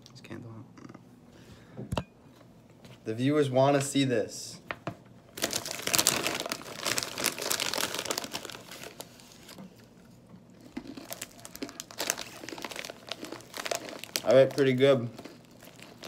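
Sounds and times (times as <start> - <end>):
snack bag rustling: 5.3 - 9.9, 10.6 - 16.0.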